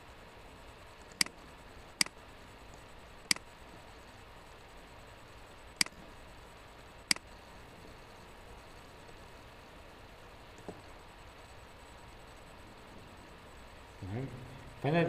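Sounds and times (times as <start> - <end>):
faint room hiss: 0.0 - 15.0
computer mouse clicks: 1.1 - 1.4, 2.0 - 3.5, 7.1 - 7.3.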